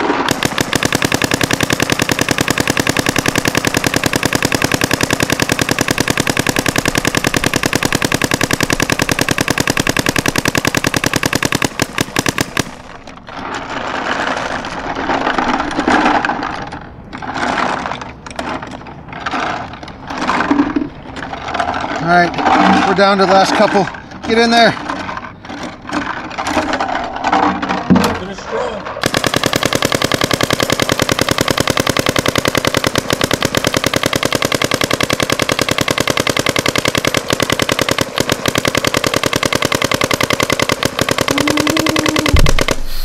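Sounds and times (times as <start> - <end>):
paintball marker firing: 0.0 - 12.9, 29.0 - 43.0.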